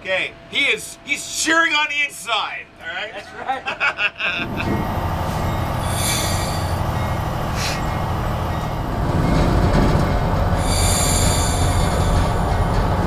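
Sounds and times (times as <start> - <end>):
diesel engines running: 0.0 - 13.0
wheel squeals on rails: 4.4 - 13.0.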